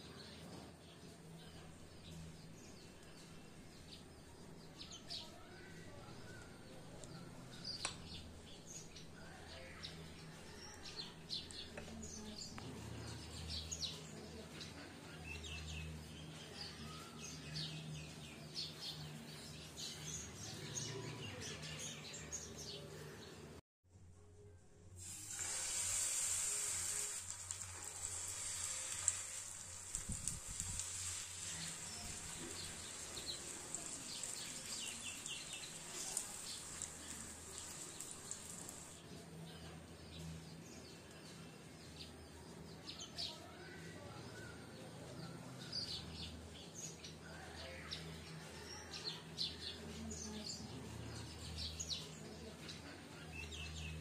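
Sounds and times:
batter sizzling in hot oil: 25.0 - 39.0
small birds chirping: 27.5 - 54.0.

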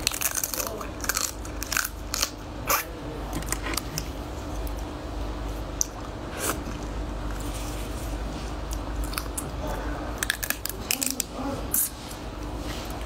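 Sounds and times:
crab shell cracking: 10.2 - 11.3.

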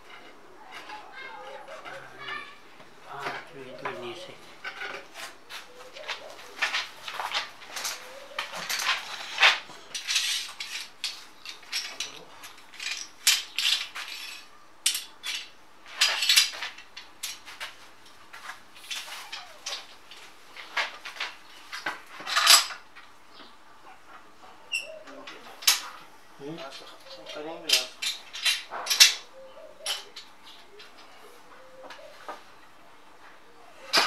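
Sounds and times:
hard objects clattering: 0.0 - 17.8, 25.0 - 31.2.

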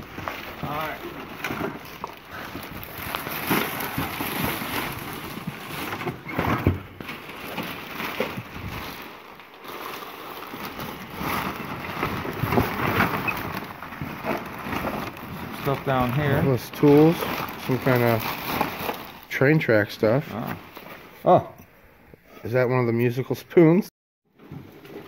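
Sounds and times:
rustling and knocking of things: 0.0 - 19.2, 24.3 - 25.0.

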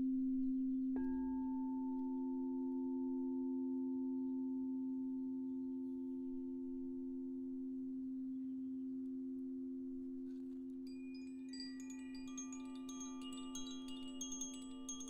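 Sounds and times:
singing bowls humming: 1.0 - 9.8, 10.9 - 15.0
wind chime tinkling: 10.8 - 15.0.

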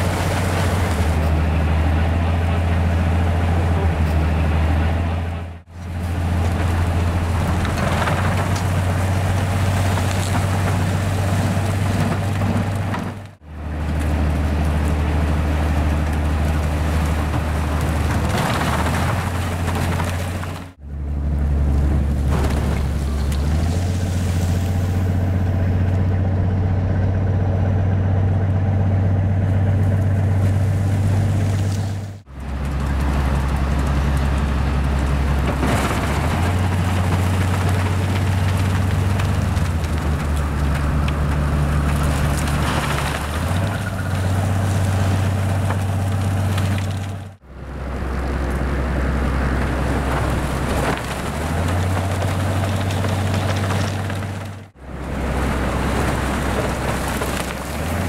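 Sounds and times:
low engine drone: 20.8 - 58.0.

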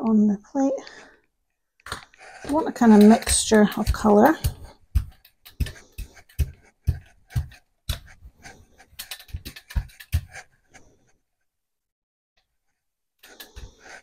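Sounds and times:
brayer rolling paint: 2.2 - 11.0, 12.7 - 14.0.

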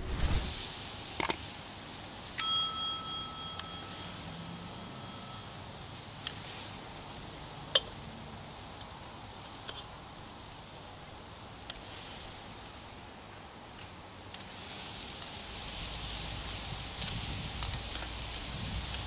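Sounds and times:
faint steady hiss: 0.0 - 19.0
bright bell ding: 2.4 - 5.8.

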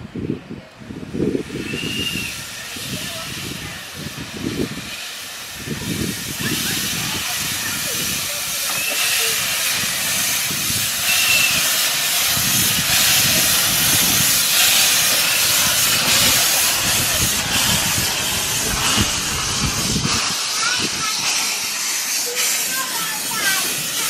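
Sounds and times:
steam locomotive hissing: 0.2 - 24.0.

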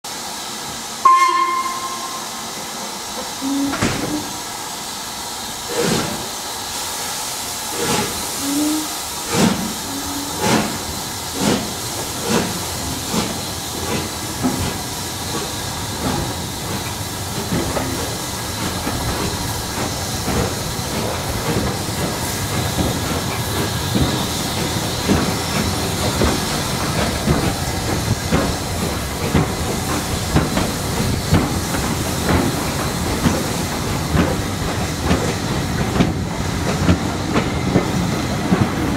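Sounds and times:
hiss of steam: 0.1 - 38.9
steam locomotive whistle: 1.0 - 2.7, 3.4 - 4.4, 8.3 - 9.1, 9.8 - 10.7.

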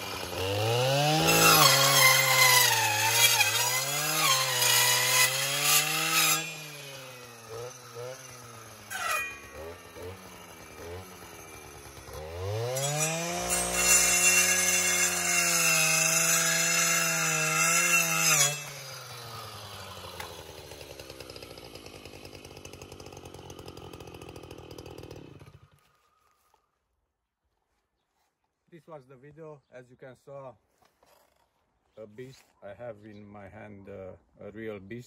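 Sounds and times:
saw blade cutting wood: 0.0 - 22.4
brush cutter engine revving: 0.0 - 26.5.

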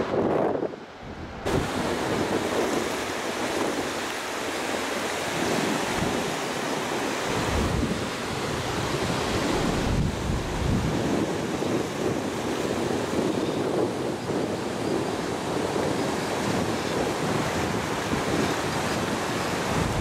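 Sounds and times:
surf breaking on beach: 0.0 - 20.0
wind on microphone: 0.0 - 20.0.

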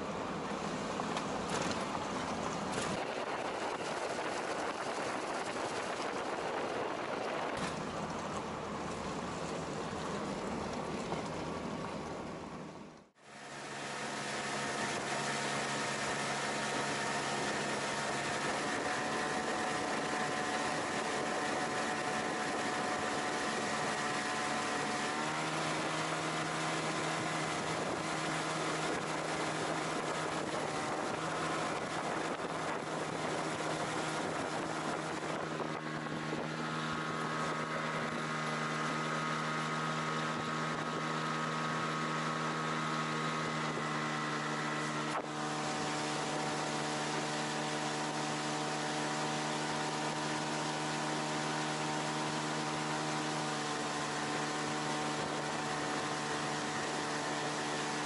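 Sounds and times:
outboard motor running: 0.0 - 58.0.

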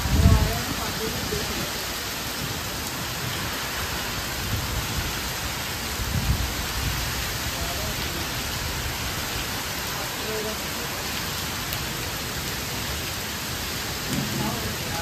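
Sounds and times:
heavy rain on trees and pavement: 0.0 - 15.0
low thump: 14.1 - 14.6.

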